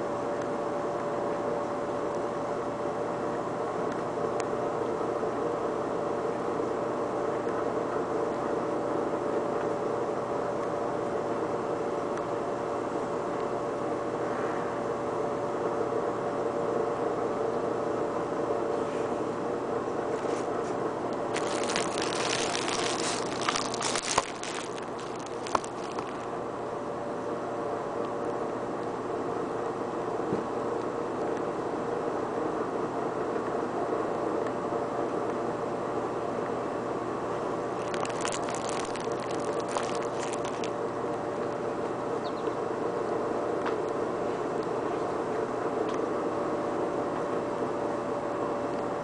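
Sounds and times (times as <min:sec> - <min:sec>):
air conditioner and fan hum: 0:00.0 - 0:49.0
faint crackling: 0:21.3 - 0:26.3, 0:37.8 - 0:40.7.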